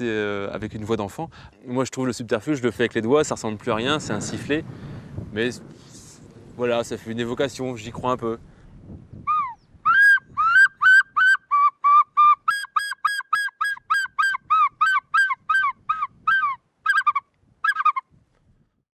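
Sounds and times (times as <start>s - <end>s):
hand-whistled bird call imitation: 9.3s - 18.0s.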